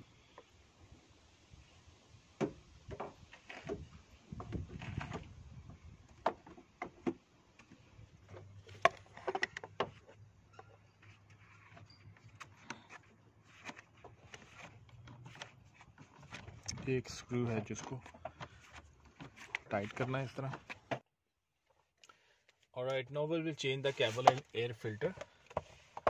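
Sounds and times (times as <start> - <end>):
plastic airbox knocks and clicks: 8.2 - 10.1.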